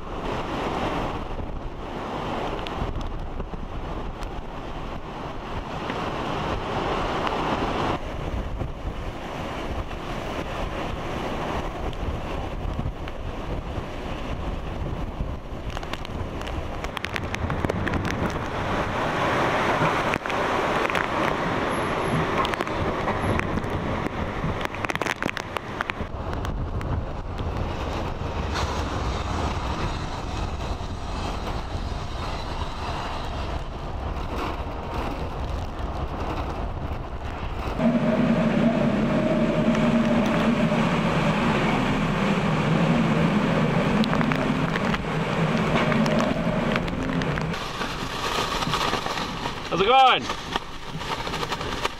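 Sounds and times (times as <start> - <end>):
wind and rain: 0.0 - 51.9
machine hum: 37.8 - 47.6.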